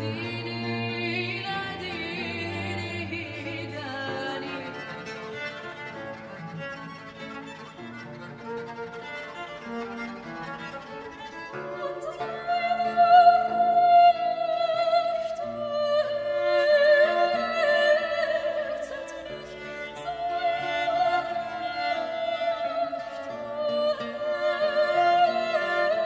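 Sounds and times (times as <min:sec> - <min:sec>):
women singing with vibrato: 0:00.0 - 0:04.8, 0:11.8 - 0:26.0
bowed strings: 0:00.0 - 0:26.0.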